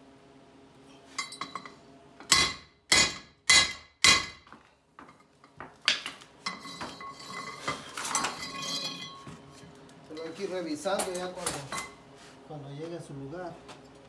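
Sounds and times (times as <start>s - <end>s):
metallic clattering and ringing: 0.9s - 1.8s, 6.5s - 9.6s.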